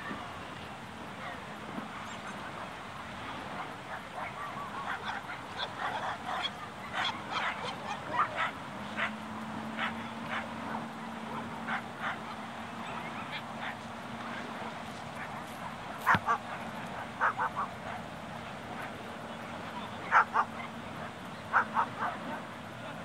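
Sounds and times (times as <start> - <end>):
dogs barking and yipping: 3.6 - 13.9, 15.1 - 18.9, 19.7 - 22.4.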